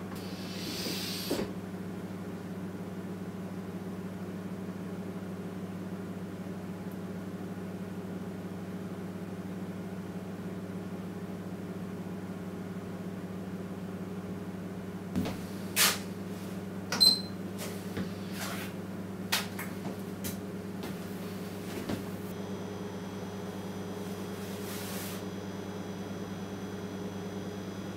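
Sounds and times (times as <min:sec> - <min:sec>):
steady low hum: 0:14.8 - 0:27.9.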